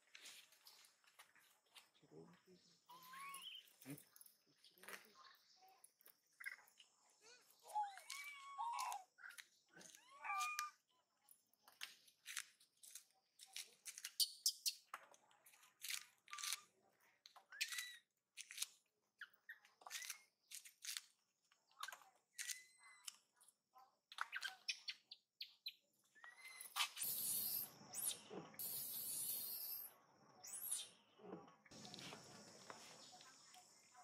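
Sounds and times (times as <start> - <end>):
high-pitched chirps and squeaks: 2.9 - 4.0, 6.4 - 10.8, 14.0 - 14.9, 17.5 - 18.6, 19.2 - 21.0, 21.8 - 23.2, 24.1 - 31.0.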